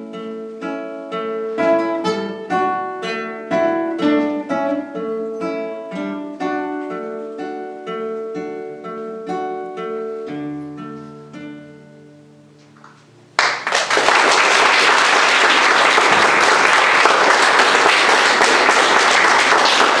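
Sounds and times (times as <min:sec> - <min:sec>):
classical guitars playing: 0:00.0 - 0:13.4, 0:14.9 - 0:20.0
audience applauding: 0:13.4 - 0:20.0.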